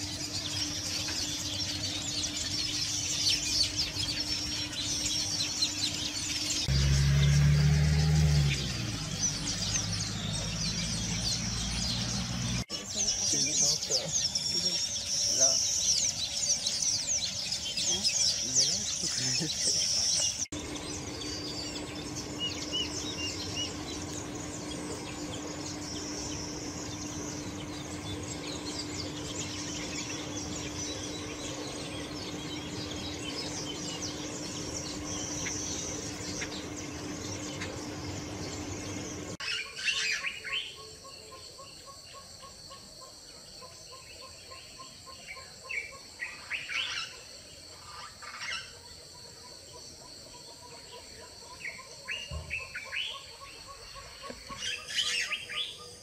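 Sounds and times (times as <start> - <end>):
low steady hum: 0.0 - 39.5
high insect whine: 0.0 - 56.0
weaver birds chattering: 0.0 - 56.0.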